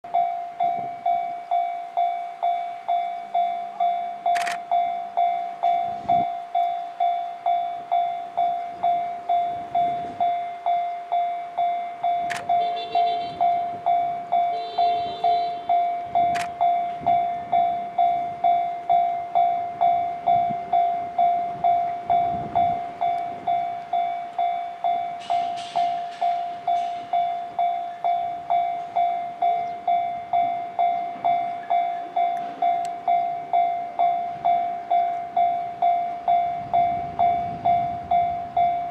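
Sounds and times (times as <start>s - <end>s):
level crossing warning bell ringing: 0.1s - 38.9s.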